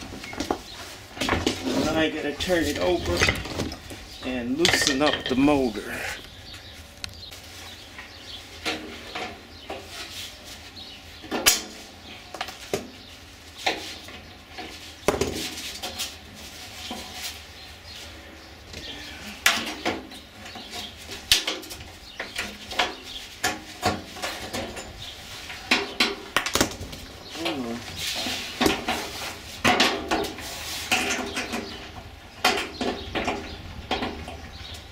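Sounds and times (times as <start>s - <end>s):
metal clanks and knocks: 1.2s - 5.8s, 27.4s - 34.7s.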